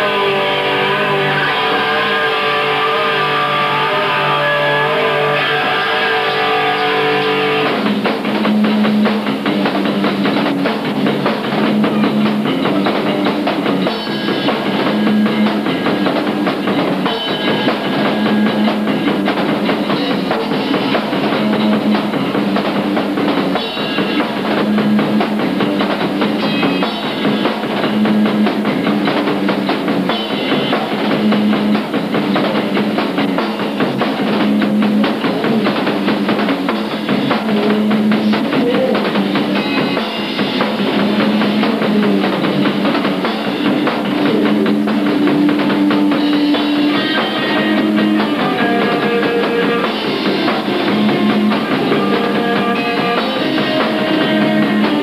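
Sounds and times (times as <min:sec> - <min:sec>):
drum kit beat: 0:00.0 - 0:55.0
electric guitar and bass riff: 0:00.0 - 0:55.0.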